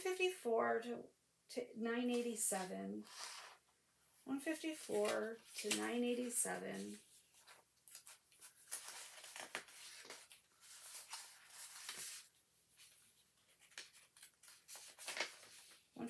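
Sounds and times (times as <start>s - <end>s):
paper sheets rustling: 4.5s - 16.0s.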